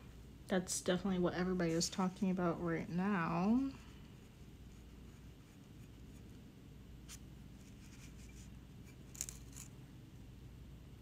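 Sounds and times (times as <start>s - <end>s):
low steady hum: 0.0s - 11.0s
paintbrush scratching on ceramic: 7.1s - 9.1s.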